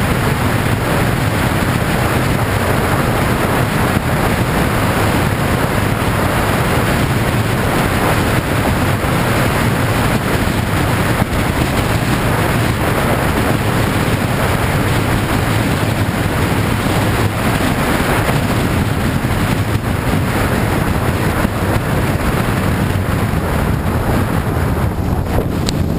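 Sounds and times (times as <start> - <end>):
motorcycle engine running: 0.0 - 25.9
wind rushing over microphone: 0.0 - 25.9.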